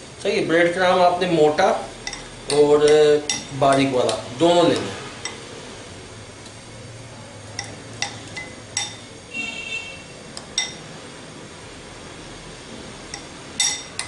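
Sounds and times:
metal spoon clinking glass bowl: 0:02.0 - 0:03.9, 0:07.6 - 0:09.1, 0:10.6 - 0:10.8, 0:13.1 - 0:14.0.

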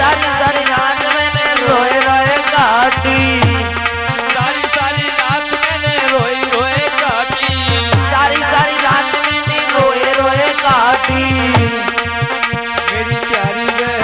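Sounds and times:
ornamented melody line: 0:00.0 - 0:14.0
hand drum beating: 0:02.2 - 0:05.0, 0:05.7 - 0:14.0.

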